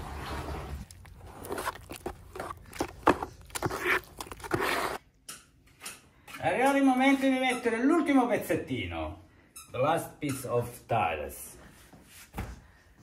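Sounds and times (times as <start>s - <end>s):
trowel scraping in bucket: 0.0s - 5.0s.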